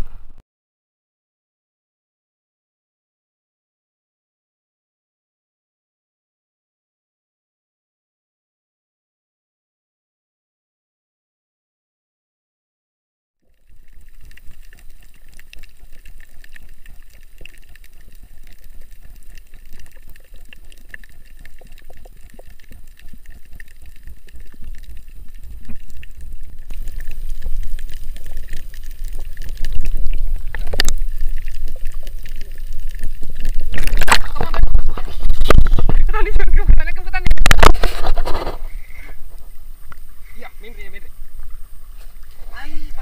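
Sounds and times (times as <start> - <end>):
faint fine crackle: 0.0 - 0.4, 13.4 - 43.0
muffled underwater water noise: 0.0 - 0.4, 13.4 - 43.0
water noise: 0.0 - 0.4, 13.4 - 43.0
wind buffeting on microphone: 33.7 - 39.3.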